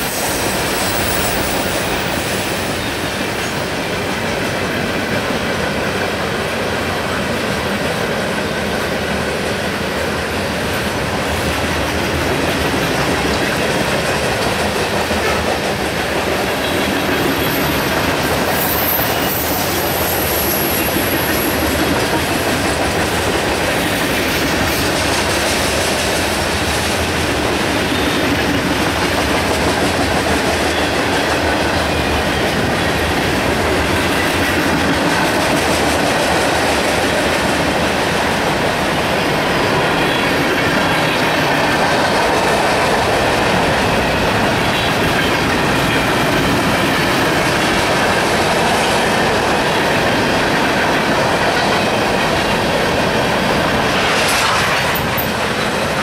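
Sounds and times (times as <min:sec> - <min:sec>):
high wheel squeal: 0:00.0 - 0:03.8, 0:16.5 - 0:21.7
train wheels rumbling on rails: 0:00.0 - 0:56.0.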